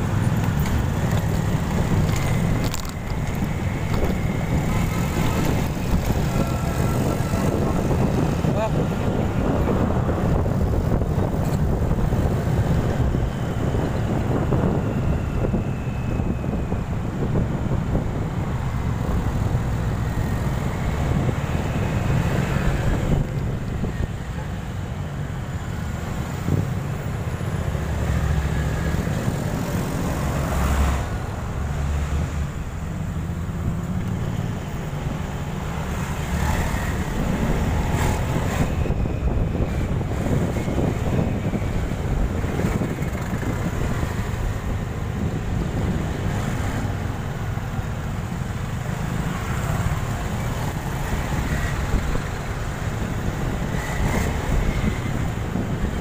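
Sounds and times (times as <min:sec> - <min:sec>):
motorcycle engine rumble: 0:00.0 - 0:25.0
road traffic: 0:00.0 - 0:56.0
wind buffeting microphone: 0:00.0 - 0:56.0.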